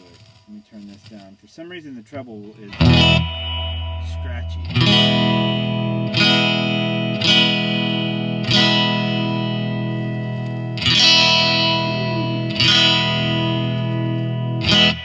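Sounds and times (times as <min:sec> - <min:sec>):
electric guitar strumming chords: 0:02.5 - 0:15.0.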